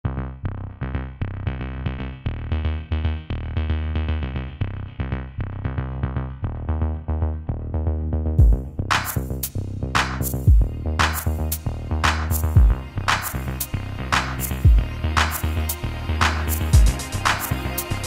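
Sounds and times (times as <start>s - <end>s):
electronic synth music: 6.3s - 18.0s
low drum hit: 8.4s - 8.6s.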